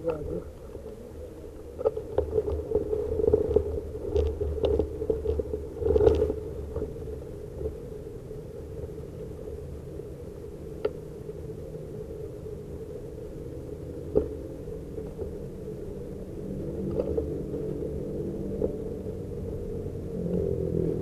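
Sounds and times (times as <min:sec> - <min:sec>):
bicycle rolling rumble: 0:00.0 - 0:21.0
knocks and rattles on paving: 0:01.6 - 0:07.7.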